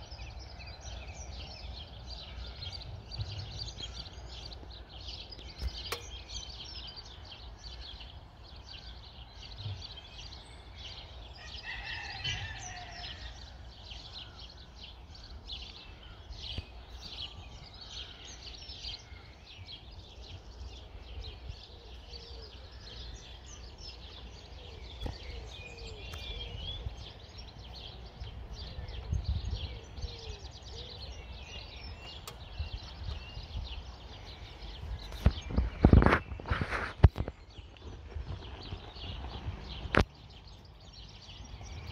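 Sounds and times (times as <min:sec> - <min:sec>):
birds chirping and singing: 0:00.0 - 0:41.9.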